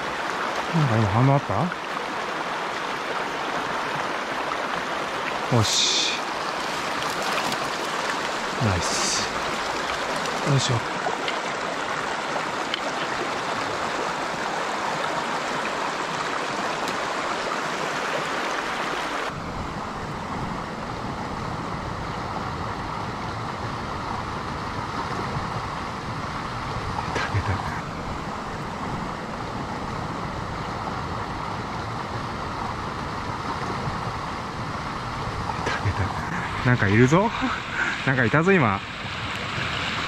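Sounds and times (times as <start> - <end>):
small cascade rushing: 0.0 - 19.4
stream rushing over rocks: 0.0 - 40.0.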